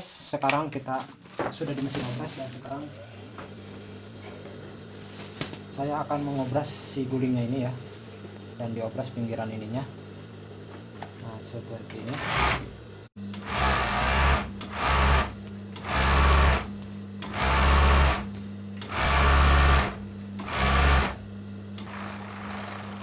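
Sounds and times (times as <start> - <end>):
steady low hum: 0.1 - 22.9
overlock machine stitching: 12.0 - 21.2, 21.8 - 23.0.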